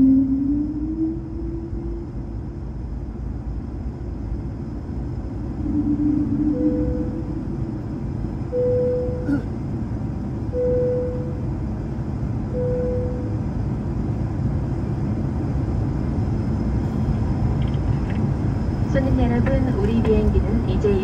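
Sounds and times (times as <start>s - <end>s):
short steady tone: 0.0s - 2.7s, 5.5s - 9.5s, 10.5s - 11.5s, 12.5s - 13.4s
aircraft engines and wheels rumbling: 0.0s - 21.0s.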